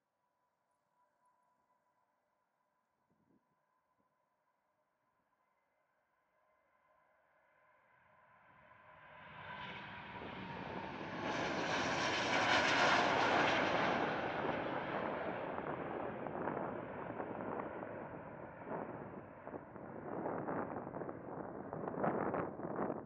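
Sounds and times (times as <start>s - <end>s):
jet engines at takeoff: 9.1s - 23.0s.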